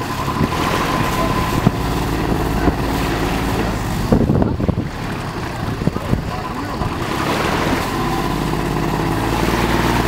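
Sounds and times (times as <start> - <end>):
motorboat engine running: 0.0 - 10.0.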